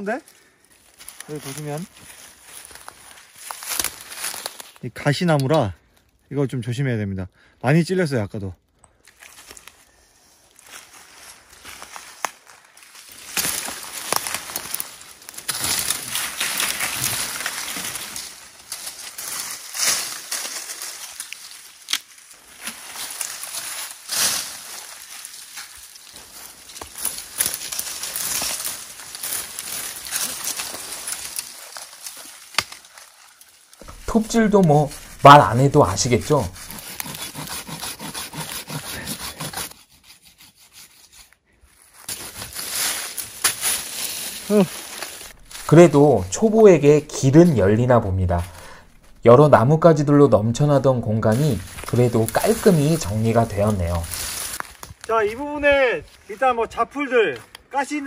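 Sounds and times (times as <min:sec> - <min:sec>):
dry branches rustling and crackling: 0:00.0 - 0:04.9, 0:08.9 - 0:39.5, 0:41.6 - 0:58.0
branches snapping: 0:00.9 - 0:04.8, 0:11.7 - 0:37.8, 0:42.0 - 0:49.4, 0:51.2 - 0:55.4
hand saw cutting branch: 0:33.8 - 0:41.4.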